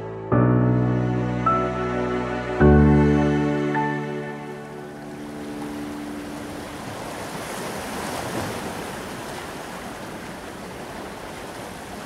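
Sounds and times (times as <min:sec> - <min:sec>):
background music held note: 0:00.0 - 0:06.6
ocean waves washing in: 0:00.9 - 0:12.0.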